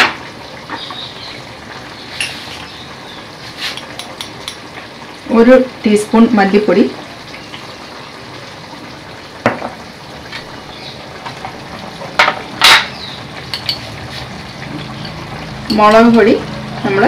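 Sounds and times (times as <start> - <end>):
chicken frying in a pan: 0.0 - 17.0
metal utensil clinking on pan: 12.2 - 13.9.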